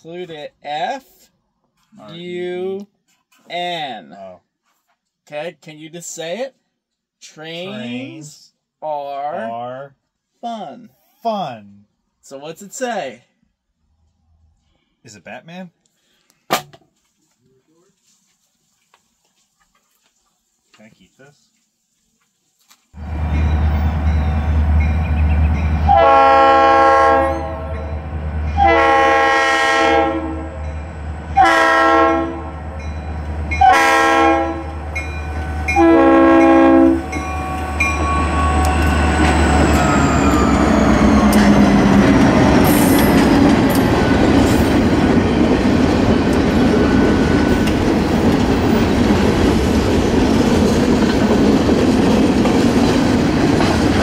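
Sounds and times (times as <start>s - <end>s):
locomotive air horn blasts: 25.8s - 27.9s, 28.5s - 30.7s, 31.4s - 32.7s, 33.5s - 38.9s.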